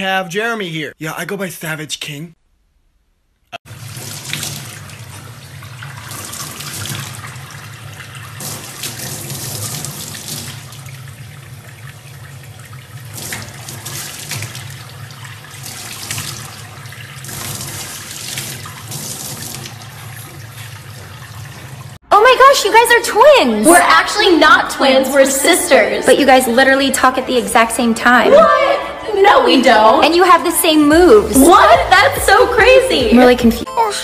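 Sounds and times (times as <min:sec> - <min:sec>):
water running into a sink: 0:03.6 - 0:22.0
water splashing: 0:03.7 - 0:22.0.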